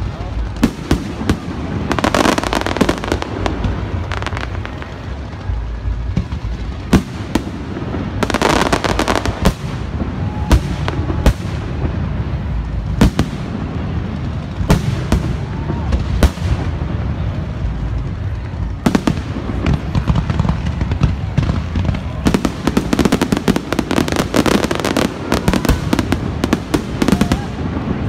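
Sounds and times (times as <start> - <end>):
firework crackling: 0.0 - 28.0
low rumble: 3.1 - 8.3, 8.9 - 24.2.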